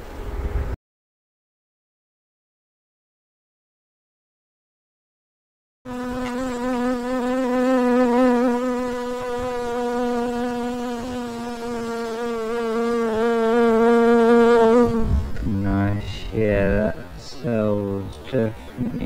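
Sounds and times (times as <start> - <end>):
bees buzzing: 5.9 - 15.1.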